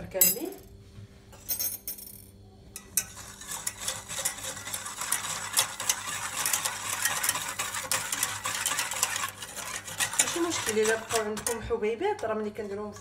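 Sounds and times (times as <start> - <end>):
whisk scraping metal saucepan: 2.8 - 13.0.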